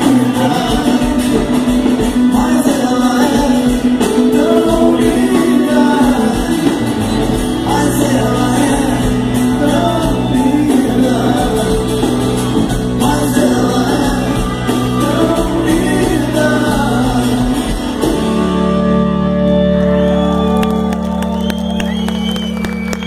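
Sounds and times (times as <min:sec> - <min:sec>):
man singing: 0:00.0 - 0:18.3
rock band playing: 0:00.0 - 0:23.0.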